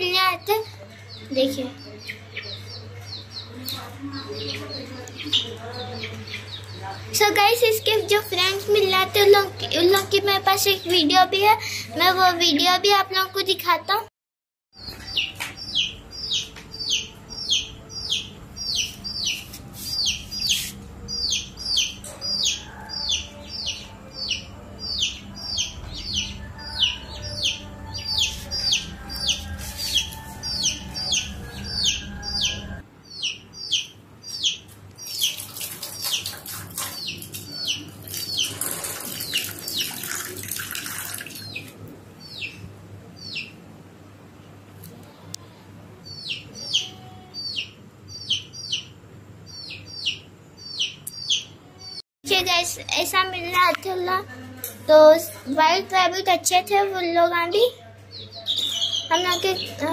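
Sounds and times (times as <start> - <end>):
bird chirping: 14.8 - 40.2, 41.3 - 43.6, 46.0 - 52.0, 58.2 - 59.9.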